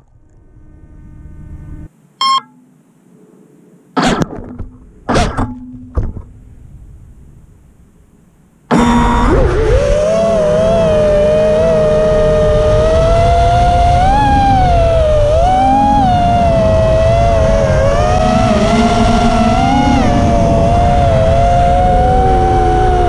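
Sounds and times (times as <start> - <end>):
drone motors whining: 8.7 - 23.0
wind rush on microphone: 9.4 - 23.0.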